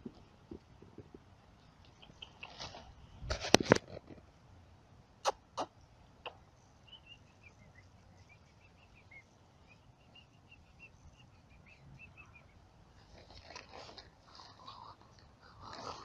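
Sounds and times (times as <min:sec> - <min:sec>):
rustling in dry grass: 0:02.2 - 0:04.3, 0:12.2 - 0:16.0
faint high chirps: 0:06.3 - 0:12.6.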